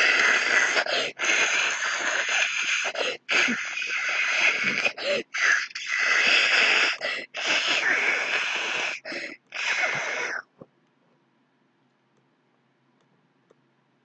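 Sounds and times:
person making breathy hissing noises: 0.0 - 10.5.

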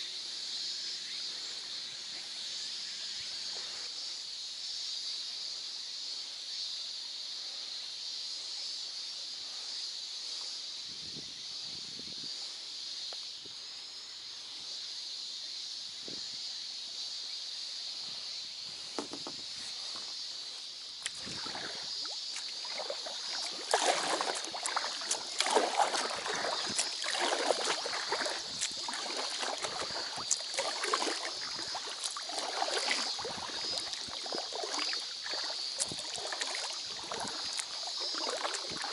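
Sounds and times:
paddle splashing in water: 21.0 - 38.9.

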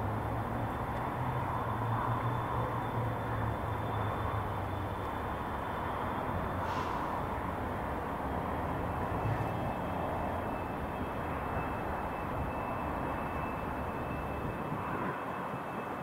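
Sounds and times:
diesel locomotives rumbling: 0.0 - 16.0
faint high whine: 8.8 - 16.0.

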